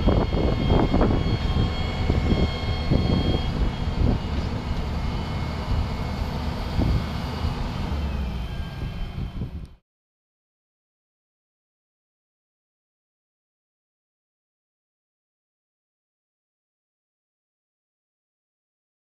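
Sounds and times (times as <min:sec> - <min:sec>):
diesel engine rumbling: 0:00.0 - 0:09.8
faint high whine: 0:00.0 - 0:09.8.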